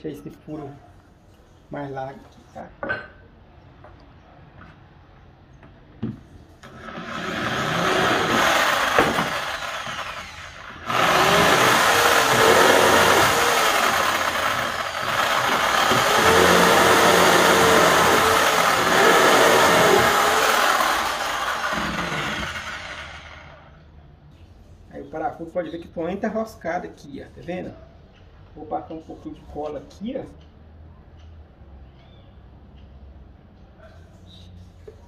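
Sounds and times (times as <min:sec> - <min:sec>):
electric drill boring into wood: 0:06.6 - 0:23.7.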